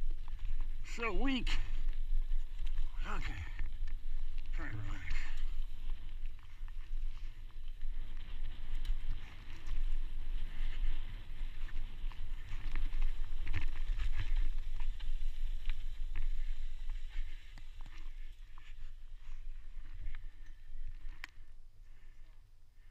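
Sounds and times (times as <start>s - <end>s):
wind rumble on microphone: 0.0s - 22.2s
bike rattling and clicking: 1.7s - 21.4s.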